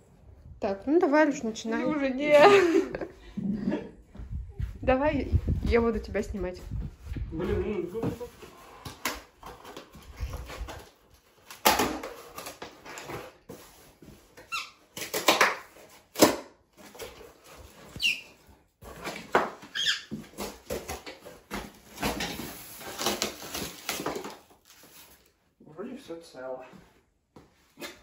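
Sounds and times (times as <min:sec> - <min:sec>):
packaging rustling and scraping: 0:08.2 - 0:16.1, 0:16.7 - 0:25.4.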